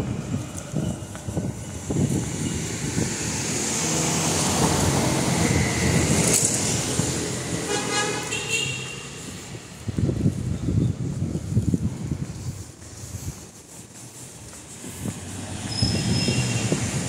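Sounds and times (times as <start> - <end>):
vehicle passing close by: 1.3 - 10.2, 14.8 - 17.0.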